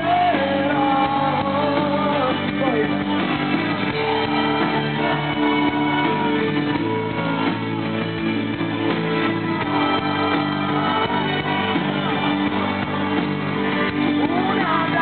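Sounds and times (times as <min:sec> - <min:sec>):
electric guitar: 0:00.0 - 0:15.0
live pop-rock band playing: 0:00.0 - 0:15.0
steady drum beat: 0:00.0 - 0:15.0.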